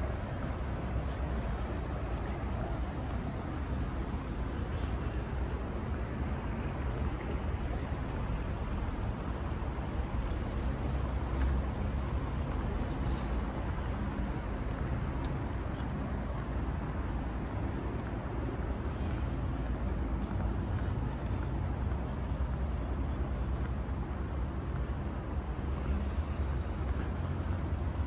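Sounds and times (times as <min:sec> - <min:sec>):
distant traffic rumble: 0:00.0 - 0:28.0.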